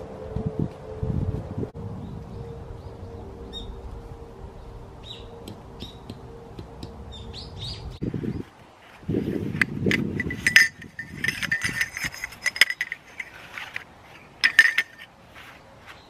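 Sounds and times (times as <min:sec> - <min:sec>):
small birds chirping: 0:04.6 - 0:09.4
tent fabric rustling on leaves: 0:08.0 - 0:10.2, 0:13.0 - 0:14.4, 0:15.0 - 0:16.0.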